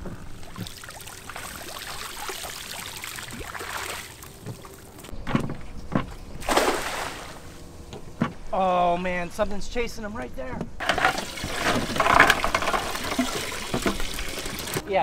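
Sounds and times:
net splashing into water: 6.4 - 7.5.

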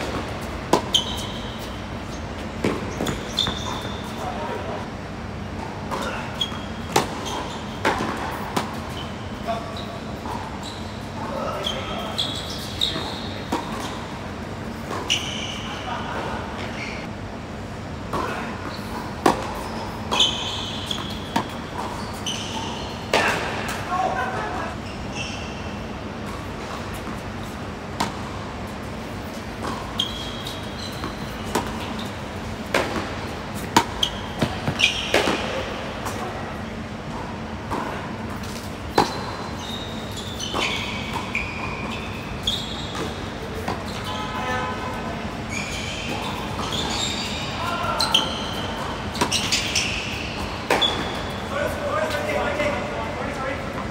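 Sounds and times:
tennis ball bouncing: 0.0 - 1.7, 2.4 - 4.2, 5.6 - 8.9, 18.1 - 23.8, 28.0 - 36.3, 37.1 - 39.6, 48.1 - 51.2
racquets striking tennis ball: 0.0 - 1.8, 2.4 - 4.2, 5.6 - 9.0, 18.1 - 23.9, 26.2 - 36.4, 37.1 - 39.6, 46.0 - 52.7
shoe squeaks: 0.0 - 4.8, 5.9 - 14.2, 14.8 - 17.1, 18.2 - 27.7, 29.2 - 36.8, 38.8 - 53.9
tennis ball struck with rackets: 6.9 - 7.2, 32.6 - 36.2.

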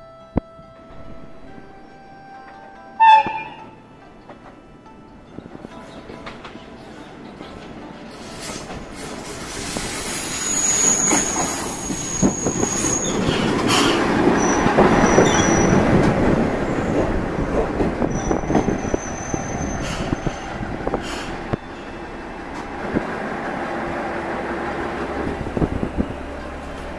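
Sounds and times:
diesel railcar rumble: 0.0 - 26.9
high-pitched brake squeals: 8.2 - 15.8, 18.1 - 22.0.

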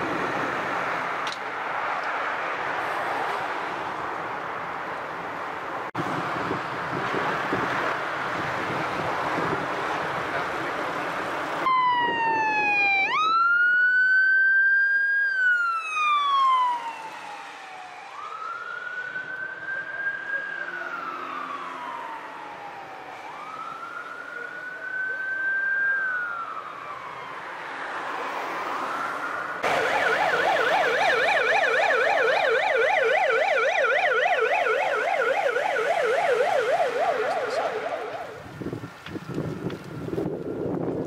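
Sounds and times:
wind buffeting microphone: 6.0 - 13.5, 36.7 - 41.0
wailing emergency siren: 11.6 - 41.0.

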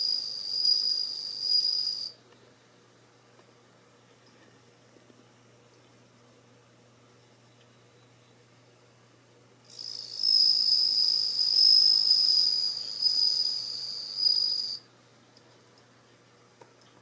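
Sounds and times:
cricket trilling: 0.0 - 2.2, 9.6 - 14.9.

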